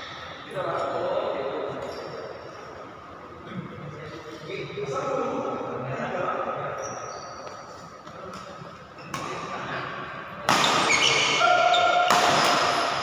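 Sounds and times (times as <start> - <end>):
shoes squeaking on court floor: 6.8 - 9.4, 10.6 - 12.0
rackets striking shuttlecock: 12.0 - 13.0.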